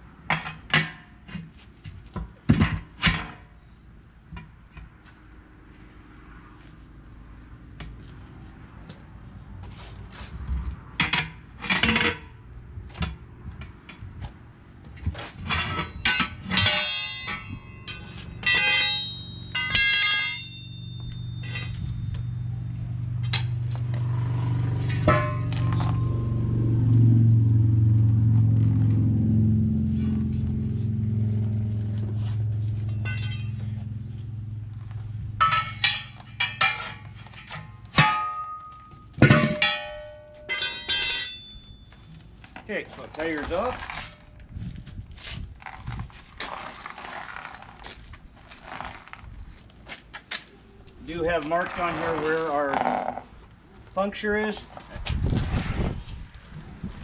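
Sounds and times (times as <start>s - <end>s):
tire irons clanking on wheel rim: 0.2s - 3.7s, 9.6s - 26.8s, 31.4s - 55.5s
low drone: 20.6s - 35.0s.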